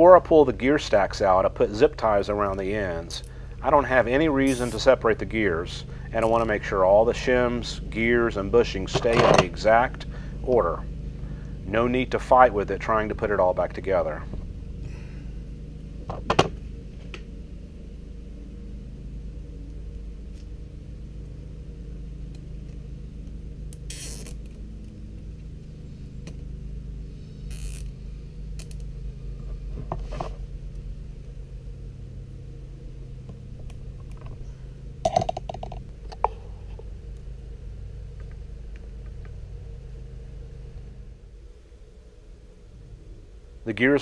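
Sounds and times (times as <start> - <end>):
steady low hum: 0.0 - 44.0
zip ties ratcheting: 4.5 - 4.8, 23.7 - 24.4, 27.5 - 27.9, 28.6 - 28.8.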